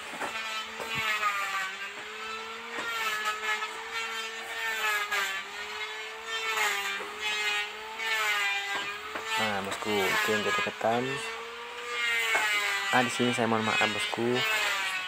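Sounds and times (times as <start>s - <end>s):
small engine running: 0.0s - 15.0s
knocks of wood or tools: 0.1s - 1.2s, 2.7s - 3.1s, 8.7s - 9.4s, 12.3s - 12.6s.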